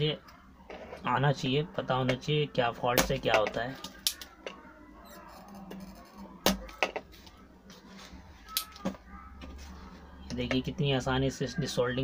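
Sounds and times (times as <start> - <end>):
desoldering pump snapping: 3.8 - 4.3.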